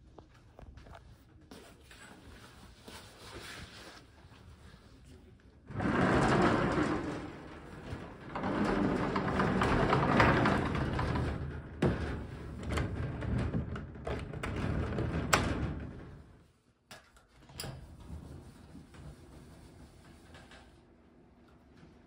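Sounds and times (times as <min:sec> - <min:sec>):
shuffling noise: 0:00.0 - 0:05.4.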